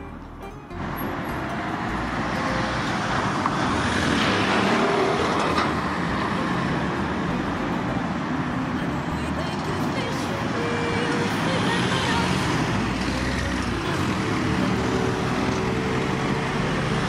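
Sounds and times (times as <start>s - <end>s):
motor vehicle passing: 0.8s - 9.0s.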